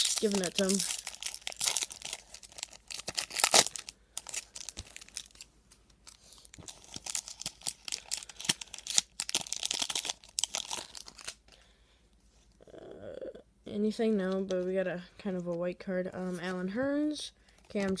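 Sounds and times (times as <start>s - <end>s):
foil wrapper crinkling and tearing: 0.0s - 11.6s.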